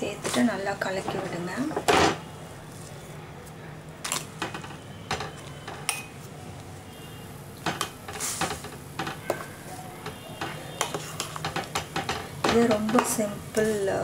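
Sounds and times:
spoon stirring in a metal pot: 7.6 - 13.9.

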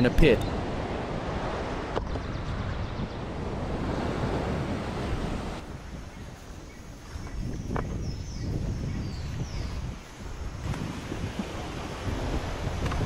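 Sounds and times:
ocean surf washing ashore: 0.0 - 7.4, 9.7 - 13.0
wind buffeting microphone: 0.5 - 13.0.

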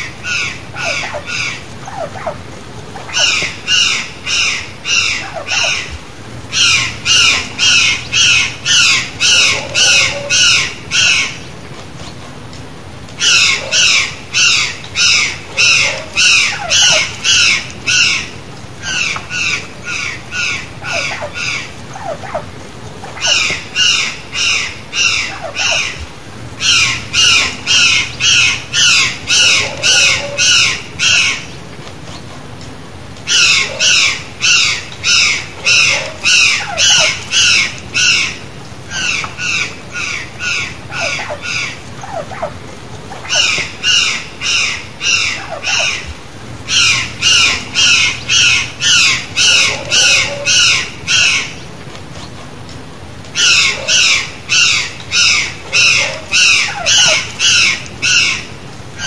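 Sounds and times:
jay harsh calls: 6.5 - 11.4, 26.6 - 31.4.

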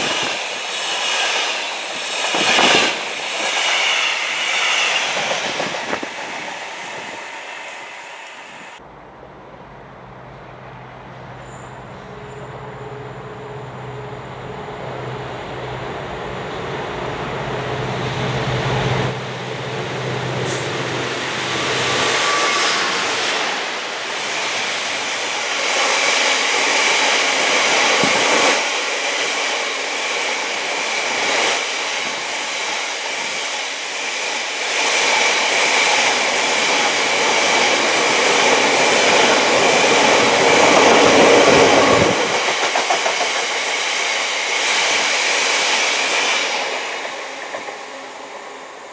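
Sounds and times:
diesel locomotive engine drone: 0.0 - 48.9
high wheel squeal: 21.4 - 23.6.

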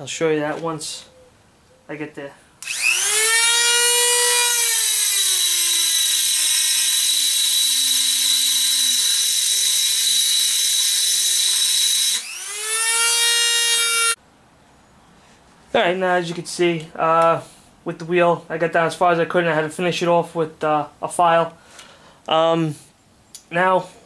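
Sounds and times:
rotary tool grinding metal: 2.6 - 14.2
rotary tool switched off: 2.6 - 14.2.

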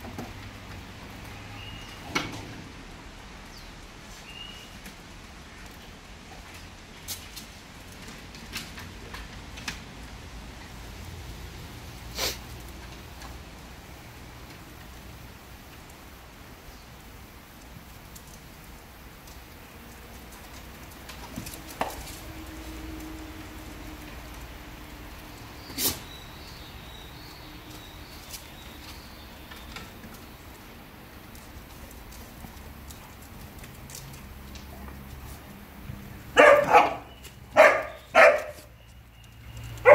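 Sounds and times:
dogs chewing: 17.6 - 39.9.

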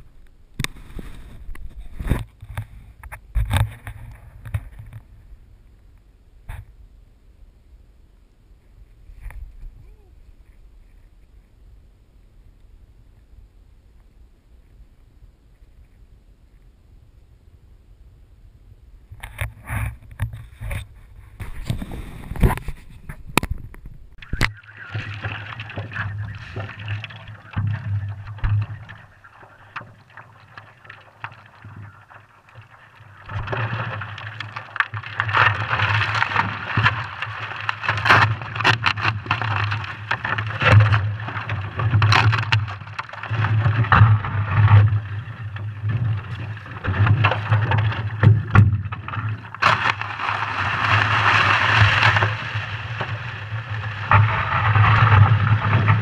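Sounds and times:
sharp knocks and crunches: 0.0 - 5.2, 19.2 - 56.0
water lapping against paddleboard: 19.3 - 56.0.

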